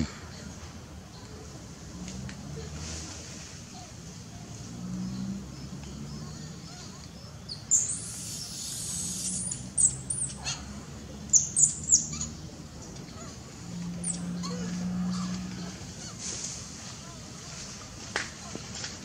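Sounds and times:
high-pitched chirping calls: 6.1s - 13.4s, 14.0s - 14.7s.

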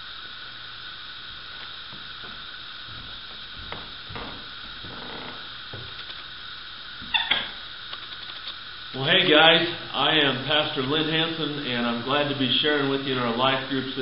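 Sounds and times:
steady background hiss: 0.0s - 14.0s
rustles and knocks on microphone: 2.0s - 6.2s.

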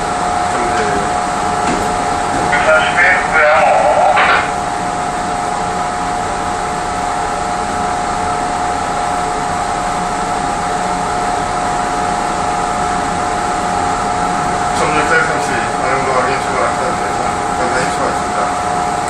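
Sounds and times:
train running noise: 0.0s - 5.7s, 12.9s - 19.0s
steady high hum: 0.0s - 19.0s.

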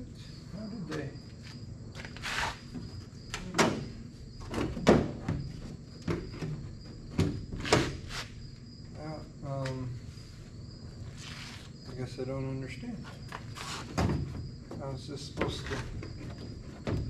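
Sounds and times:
insects chirping: 0.0s - 17.0s
sharp irregular knocks and clunks: 2.7s - 8.0s, 13.2s - 17.0s.

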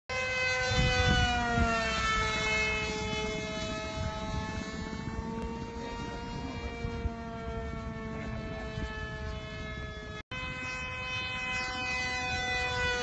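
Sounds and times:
electric model plane motor whining: 0.1s - 13.0s
wind rumble on microphone: 0.1s - 13.0s.

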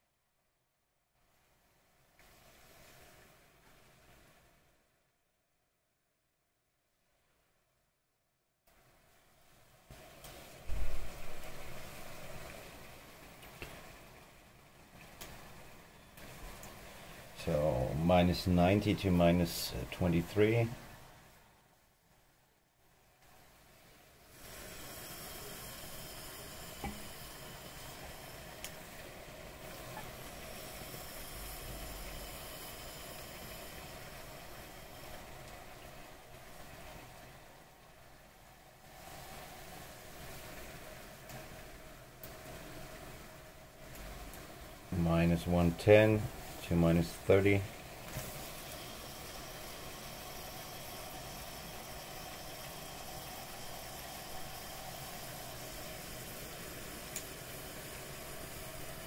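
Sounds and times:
liquid nitrogen hissing: 9.9s - 21.3s, 23.2s - 59.0s.

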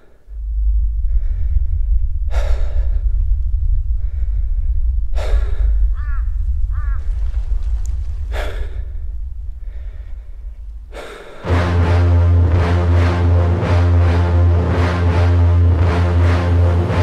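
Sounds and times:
person breathing hard: 0.0s - 11.7s
low steady drone: 0.0s - 17.0s.

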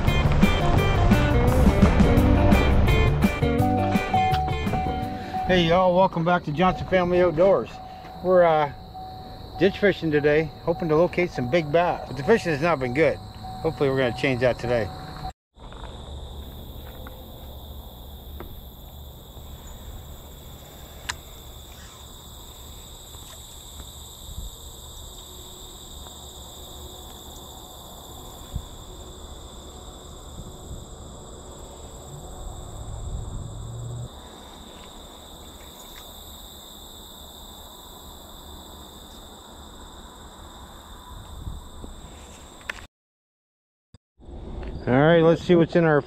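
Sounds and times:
crickets and insects trilling: 0.0s - 42.8s
low rumble on microphone: 31.8s - 34.2s.

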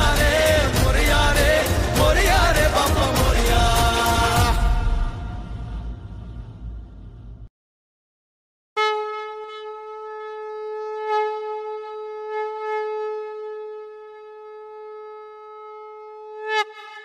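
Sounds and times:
conch shell blown: 8.8s - 17.0s.

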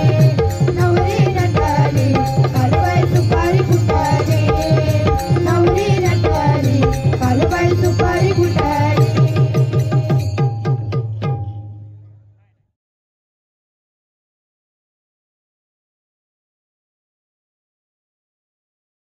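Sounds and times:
fast dense drumming: 0.0s - 10.6s.

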